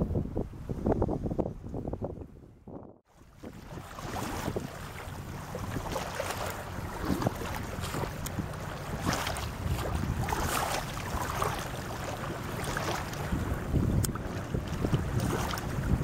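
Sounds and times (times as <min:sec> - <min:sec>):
wind rumbling on microphone: 0:00.0 - 0:16.0
hovercraft engine humming: 0:04.5 - 0:16.0.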